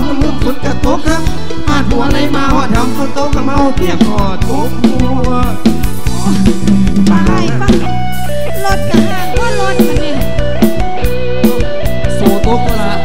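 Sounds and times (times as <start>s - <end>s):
drum kit: 0.0s - 13.0s
electric guitar melody: 0.0s - 13.0s
heavy bass: 0.0s - 13.0s.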